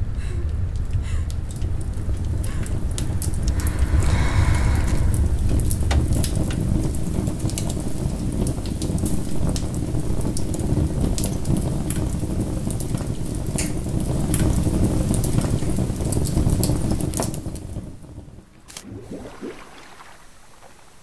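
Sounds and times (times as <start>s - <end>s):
steady deep rumble: 0.0s - 8.2s
wood fire crackling and popping: 0.5s - 19.5s.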